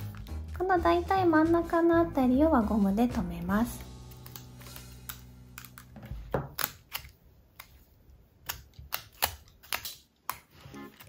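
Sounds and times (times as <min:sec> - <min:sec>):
paper clicking and crinkling: 0:08.4 - 0:11.0.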